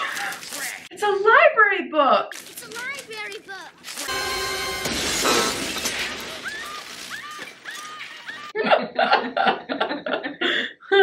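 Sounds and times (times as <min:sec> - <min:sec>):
paper ripping: 0:00.0 - 0:00.9, 0:02.3 - 0:04.2, 0:05.6 - 0:08.5.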